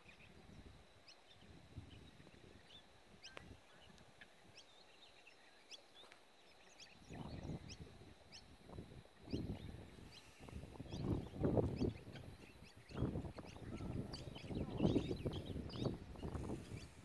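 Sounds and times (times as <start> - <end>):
birds chirping: 0.0 - 17.0
low rumble on microphone: 7.0 - 17.0.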